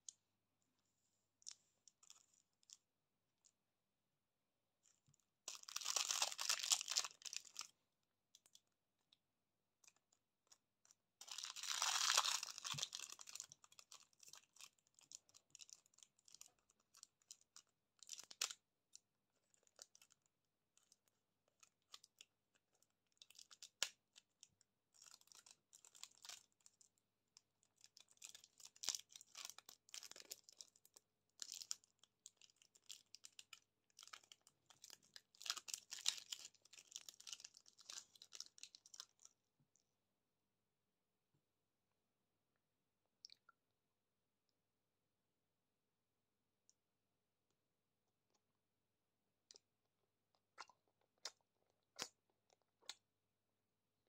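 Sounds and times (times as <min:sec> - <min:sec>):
plastic wrapper crinkling: 0:05.5 - 0:07.7, 0:11.2 - 0:18.6, 0:27.7 - 0:39.4.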